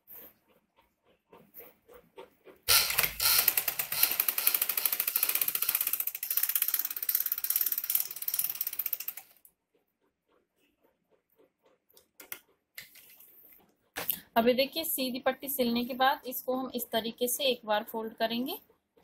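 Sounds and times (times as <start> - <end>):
sewing machine stitching: 1.4 - 9.4.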